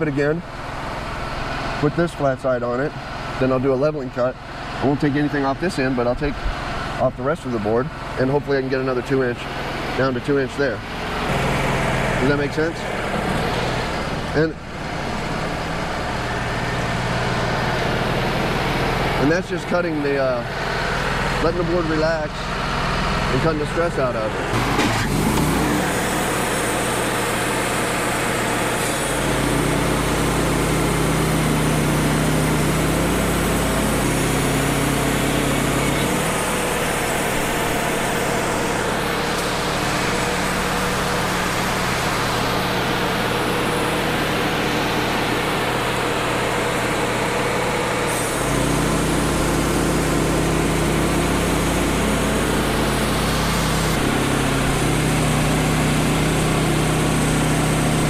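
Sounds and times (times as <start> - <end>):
sawmill engine running: 0.0 - 58.0
band saw blade cutting wood: 24.5 - 42.5, 48.1 - 58.0.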